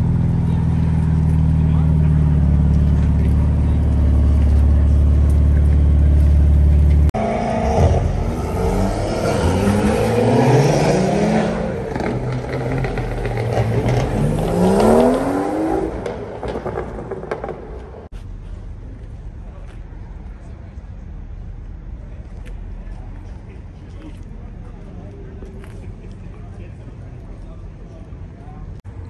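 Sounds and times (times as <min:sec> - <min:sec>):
car engine drone: 0:00.0 - 0:29.0
car engines revving: 0:00.0 - 0:29.0.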